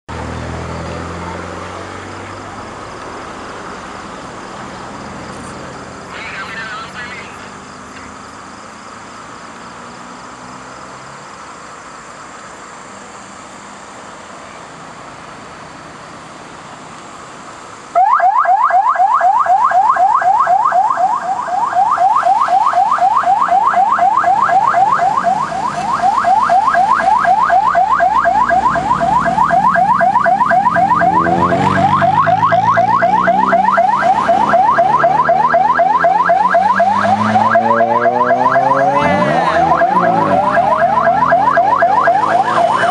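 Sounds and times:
passing traffic: 0.0 - 42.9
car engines revving: 0.1 - 18.0, 18.6 - 42.9
electronic siren yelping: 18.0 - 42.9.

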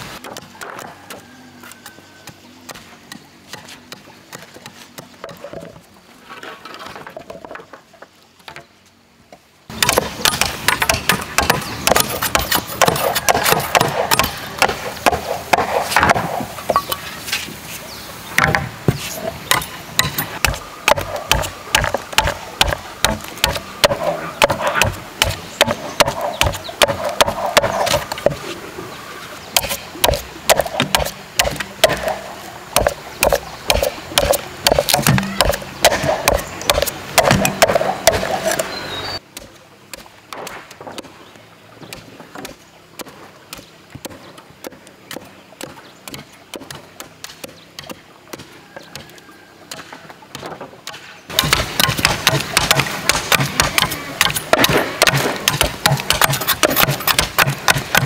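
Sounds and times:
machete chopping wood: 9.7 - 16.9, 18.4 - 28.4, 29.6 - 32.2, 32.8 - 38.7, 39.4 - 41.1, 49.7 - 58.0.

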